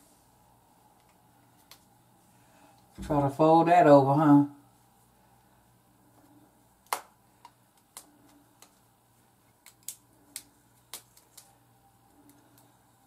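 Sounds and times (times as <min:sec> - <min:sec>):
small sharp clicks and snaps: 0:06.8 - 0:08.8, 0:09.5 - 0:12.8.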